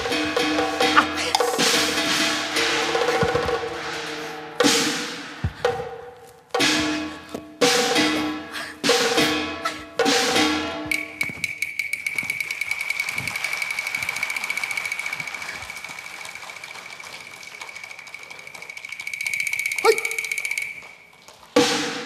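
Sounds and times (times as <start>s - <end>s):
fast high-pitched percussion roll: 8.9s - 22.0s.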